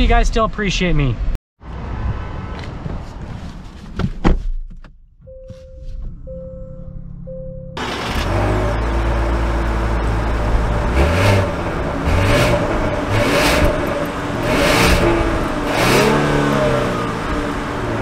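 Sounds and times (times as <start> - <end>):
car engine revving: 6.8 - 18.0.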